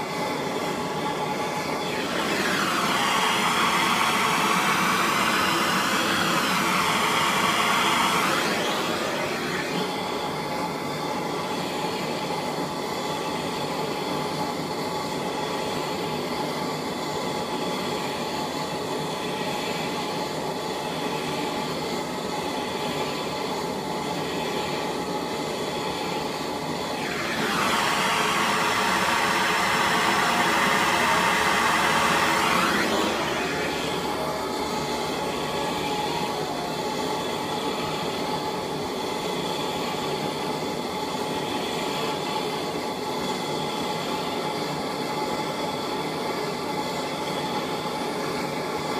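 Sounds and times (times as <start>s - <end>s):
gas torch burning: 16.4s - 48.9s.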